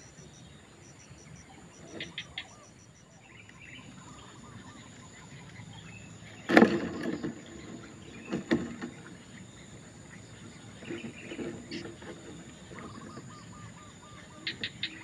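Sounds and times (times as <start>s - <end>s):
heron chicks chirping and calling: 0.2s - 15.0s.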